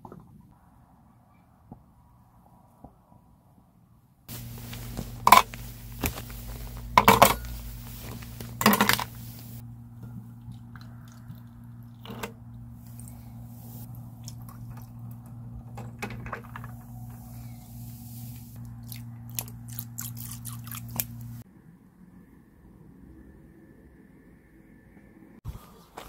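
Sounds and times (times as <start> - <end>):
steady low hum: 4.3 - 21.4.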